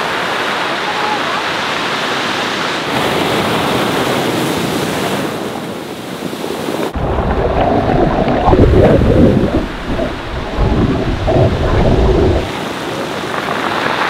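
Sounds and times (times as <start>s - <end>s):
surf breaking on pebble shore: 6.2s - 14.0s
wind buffeting microphone: 6.7s - 14.0s
water splashing against camera: 6.9s - 14.0s.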